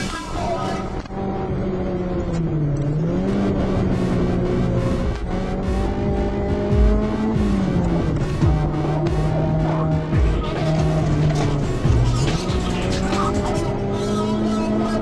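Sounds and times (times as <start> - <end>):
car engine revving high: 0.0 - 15.0
music with steady beat: 3.4 - 14.2.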